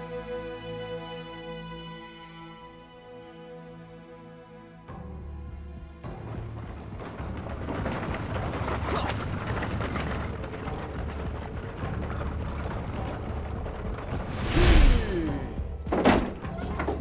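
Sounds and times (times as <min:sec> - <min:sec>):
running hoofbeats: 0:06.0 - 0:14.4
carriage wheels rumbling: 0:06.0 - 0:17.0.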